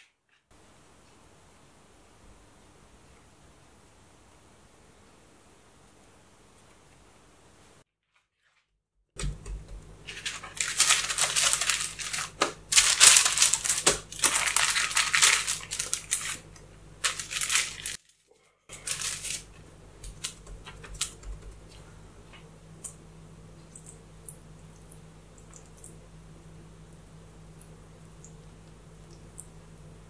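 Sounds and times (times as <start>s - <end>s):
baking paper crinkling: 10.0s - 21.8s.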